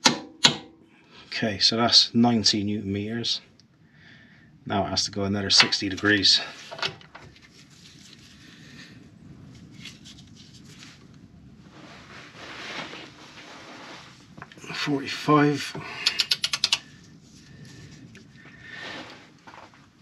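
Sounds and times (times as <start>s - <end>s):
bolt scraping under load: 6.5s - 7.3s.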